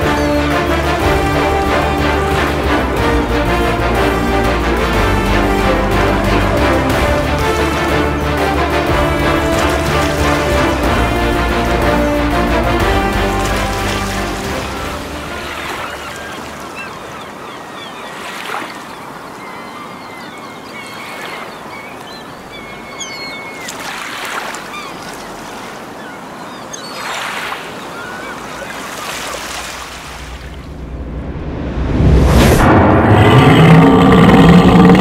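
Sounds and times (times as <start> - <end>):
surf washing in and out: 0.0 - 35.0
birds calling: 7.2 - 30.0.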